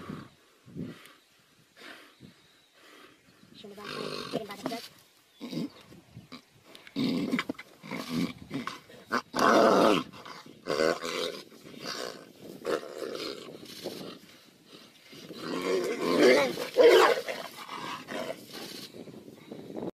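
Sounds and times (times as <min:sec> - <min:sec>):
tigers growling and snarling: 0:03.7 - 0:19.0
snarling roars: 0:06.9 - 0:13.6, 0:15.2 - 0:18.6.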